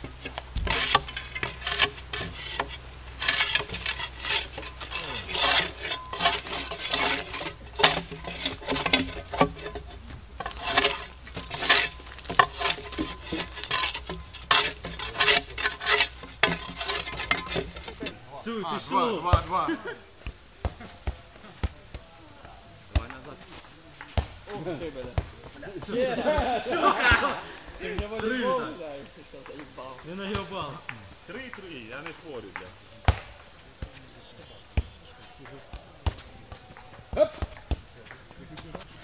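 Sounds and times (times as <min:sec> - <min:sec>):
spade scraping bark off logs: 0:00.0 - 0:19.1.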